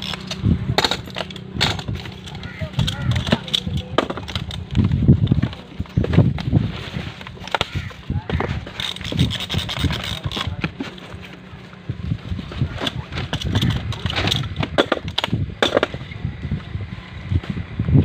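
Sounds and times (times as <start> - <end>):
strapping tensioner ratcheting: 0.0 - 16.1.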